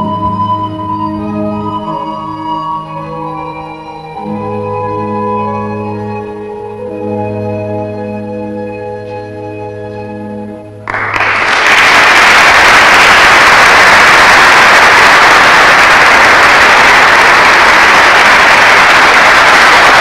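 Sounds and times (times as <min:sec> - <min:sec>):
audience applause: 0:10.9 - 0:20.0.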